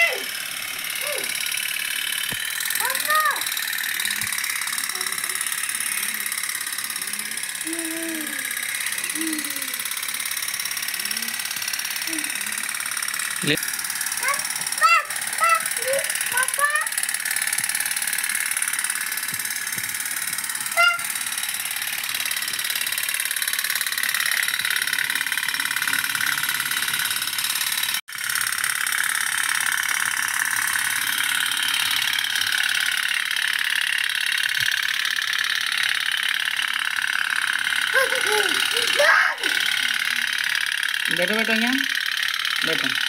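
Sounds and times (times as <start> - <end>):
toy steam boats putt-putting: 0.0 - 43.0.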